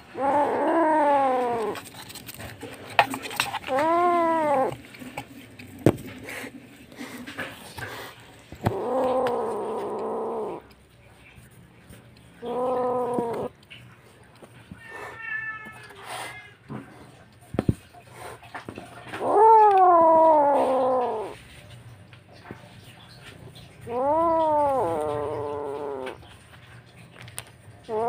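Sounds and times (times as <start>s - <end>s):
kitten meowing: 0.1s - 1.8s, 3.7s - 4.8s, 8.7s - 10.6s, 12.4s - 13.5s, 14.8s - 16.5s, 19.2s - 21.4s, 23.9s - 26.2s.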